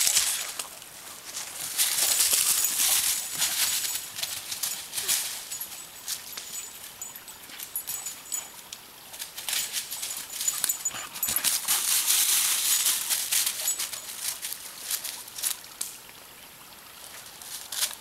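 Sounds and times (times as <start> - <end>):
paws crunching dry leaves: 1.2 - 6.6, 9.2 - 15.6.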